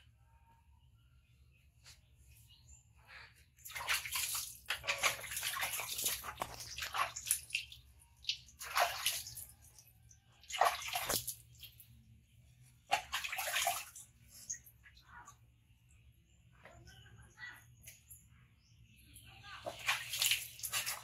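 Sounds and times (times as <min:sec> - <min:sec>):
water splashing and pouring: 0:03.6 - 0:11.9, 0:12.9 - 0:14.6, 0:19.7 - 0:21.0.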